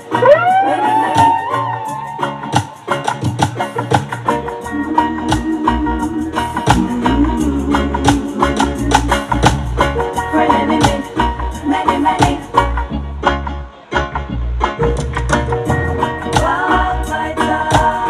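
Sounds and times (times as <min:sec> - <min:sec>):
melodic line: 0:00.0 - 0:03.1
music with heavy bass: 0:00.0 - 0:18.0.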